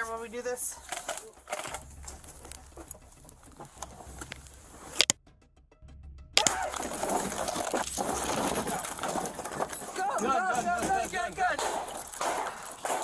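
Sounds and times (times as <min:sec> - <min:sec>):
loud scuffling and commotion: 0:06.4 - 0:13.0.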